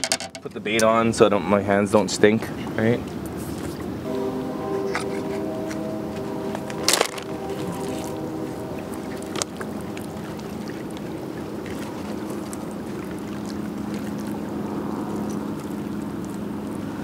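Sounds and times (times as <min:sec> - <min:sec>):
boat motor idling: 0:03.9 - 0:17.0.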